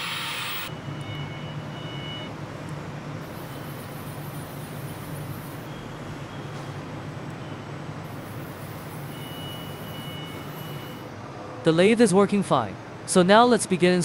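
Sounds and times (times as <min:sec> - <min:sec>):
lathe low hum: 0:00.0 - 0:00.7.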